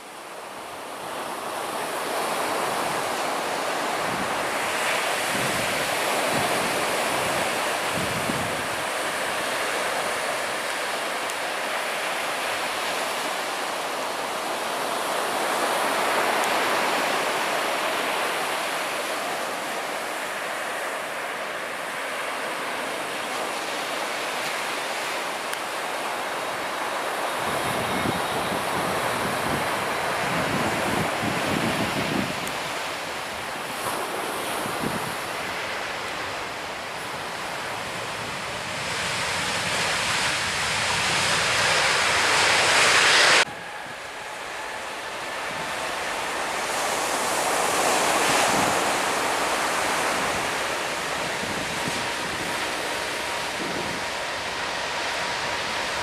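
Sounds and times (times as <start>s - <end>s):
surf washing onto beach: 0.0s - 56.0s
wind buffeting microphone: 1.0s - 11.2s, 27.2s - 56.0s
airliner low rumble: 27.5s - 56.0s.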